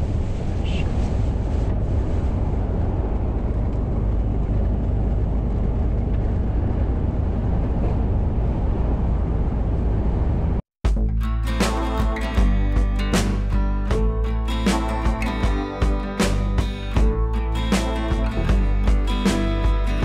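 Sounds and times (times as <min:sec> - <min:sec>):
lorry engine rumble: 0:00.0 - 0:10.6
strong wind buffeting cab: 0:00.0 - 0:10.6
strummed acoustic guitar music: 0:10.9 - 0:20.0.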